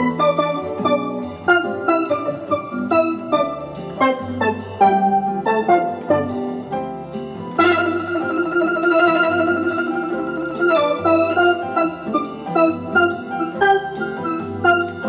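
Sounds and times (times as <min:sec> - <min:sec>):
synth steel drum melody: 0:00.0 - 0:15.0.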